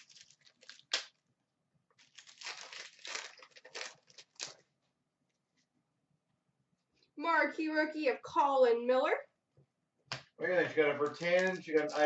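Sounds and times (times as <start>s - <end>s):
foil wrapper crinkling and tearing: 0.0s - 1.2s, 1.9s - 4.7s, 11.0s - 12.0s.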